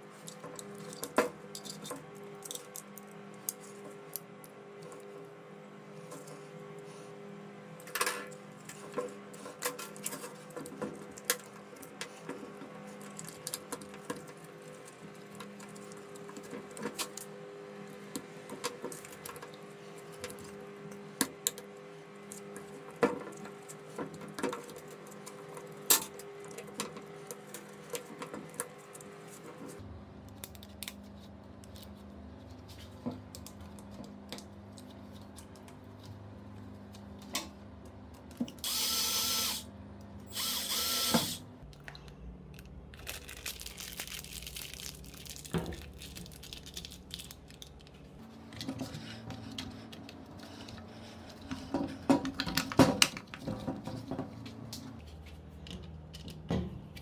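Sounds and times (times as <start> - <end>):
power drill motor: 38.6 - 39.7, 40.3 - 41.5.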